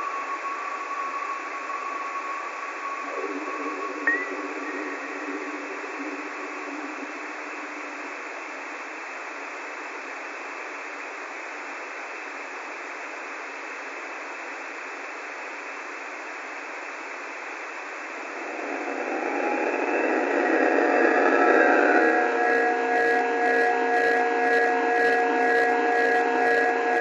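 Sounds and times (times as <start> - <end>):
steady tones: 0.0 - 8.6, 18.0 - 27.0
static hiss: 0.0 - 27.0.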